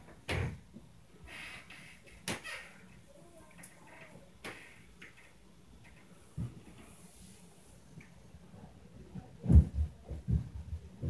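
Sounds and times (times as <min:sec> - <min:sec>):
stomping on floor upstairs: 0:09.2 - 0:11.0.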